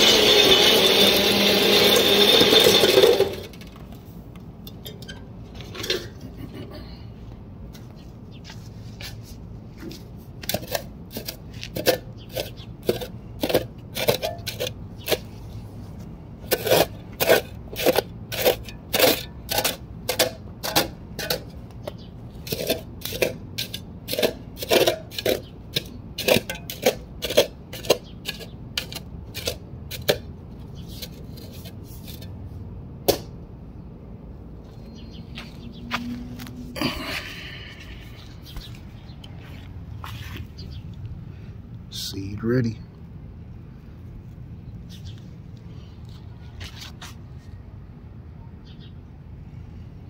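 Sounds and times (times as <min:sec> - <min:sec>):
shovel scraping into soil: 0:22.4 - 0:32.4.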